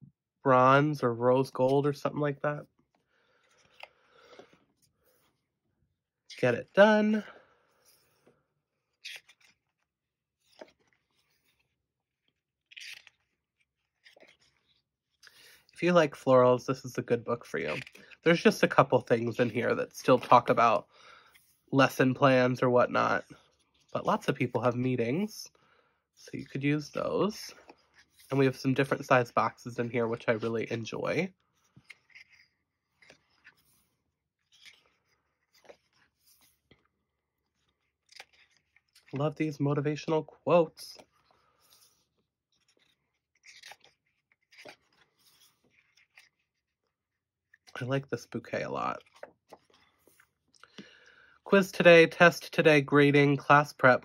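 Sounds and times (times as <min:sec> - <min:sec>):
faint paper rustles: 0:47.7 - 0:50.9.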